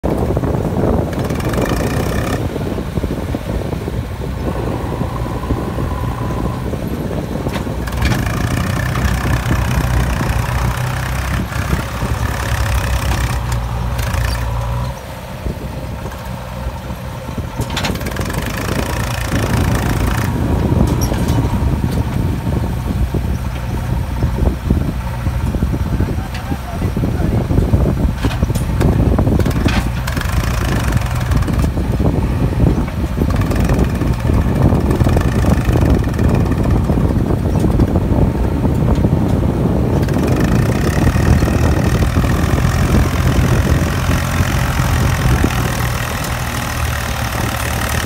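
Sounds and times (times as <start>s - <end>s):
diesel engines running hard: 0.0s - 48.0s.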